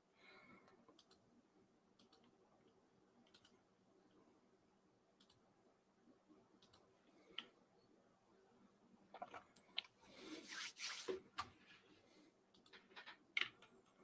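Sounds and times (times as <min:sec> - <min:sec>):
small clicks: 0:00.6 - 0:01.2, 0:02.0 - 0:02.4, 0:03.2 - 0:03.6, 0:05.2 - 0:05.4, 0:06.6 - 0:07.5.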